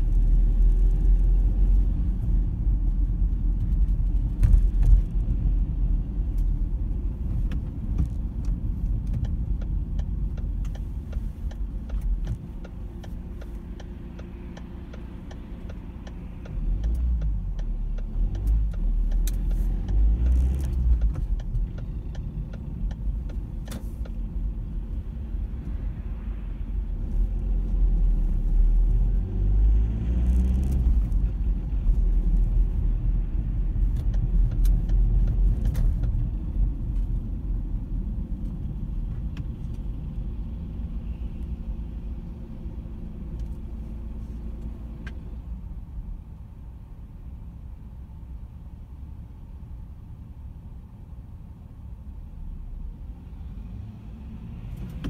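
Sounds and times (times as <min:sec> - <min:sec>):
engine and tyre rumble: 0:00.0 - 0:55.0
faint light ticks: 0:07.5 - 0:24.3, 0:33.8 - 0:37.2.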